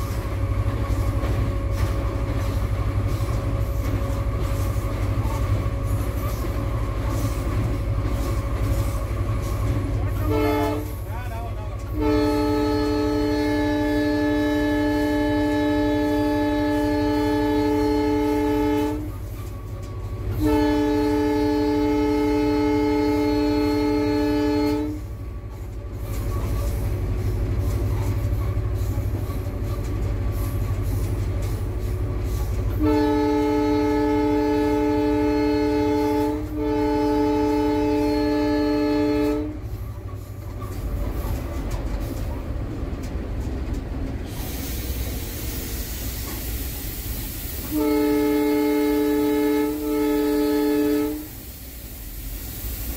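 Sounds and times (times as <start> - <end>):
wheels on rail: 0.0 - 52.9
locomotive horn blasts: 10.0 - 11.1, 11.8 - 19.2, 20.3 - 25.1, 32.7 - 39.8, 47.6 - 51.4.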